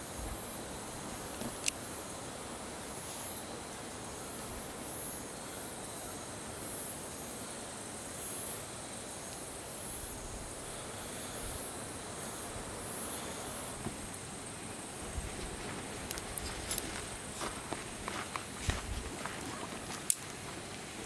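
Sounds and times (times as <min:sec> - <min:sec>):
insects trilling: 0:00.0 - 0:21.0
steady hiss: 0:00.0 - 0:21.0.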